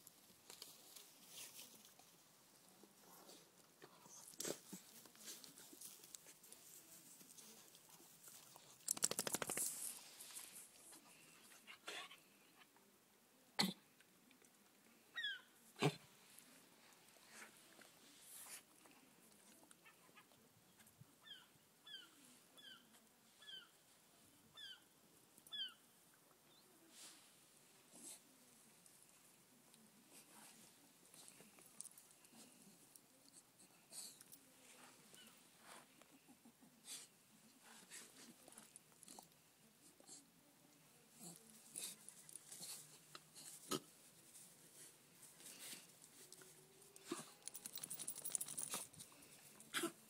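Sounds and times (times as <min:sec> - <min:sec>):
dogs snuffling and huffing: 0:41.0 - 0:50.0.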